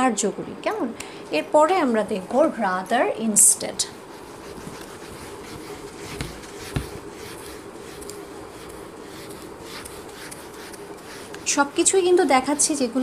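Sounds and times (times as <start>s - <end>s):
steady hum: 0.0s - 13.0s
eraser rubbing on whiteboard: 4.1s - 12.0s.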